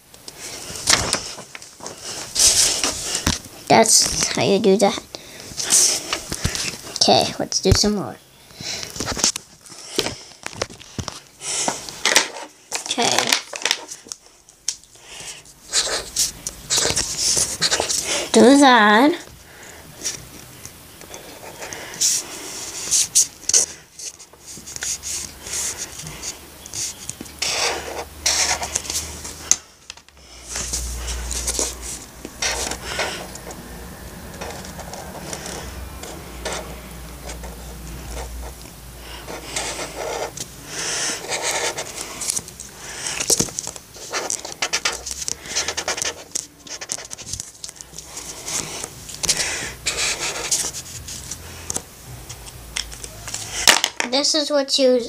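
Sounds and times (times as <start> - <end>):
pencil scratching on paper: 15.7 - 18.5, 21.2 - 29.3, 30.5 - 43.4, 44.0 - 47.2, 48.1 - 51.8.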